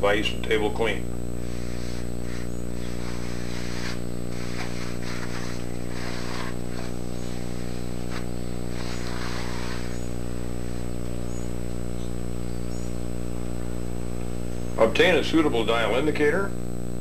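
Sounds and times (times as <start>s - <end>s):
steady low hum: 0.0s - 17.0s
cloth wiping swishes: 1.4s - 11.0s.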